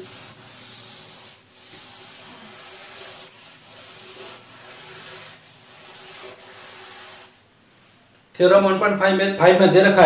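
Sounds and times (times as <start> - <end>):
eraser wiping chalkboard: 0.0 - 7.4.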